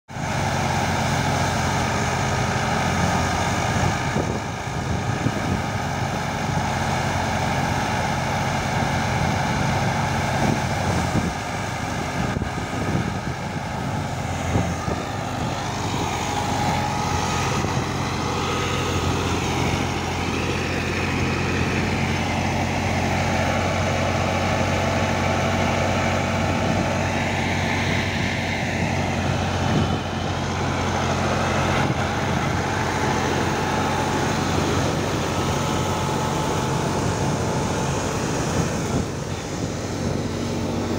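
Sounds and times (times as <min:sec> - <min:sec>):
tractor engine and thresher drone: 0:00.1 - 0:40.9.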